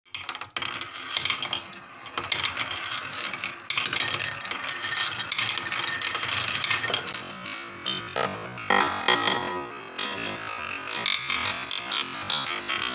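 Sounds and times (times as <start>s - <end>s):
marbles rolling in wooden bowl: 0.1s - 12.9s.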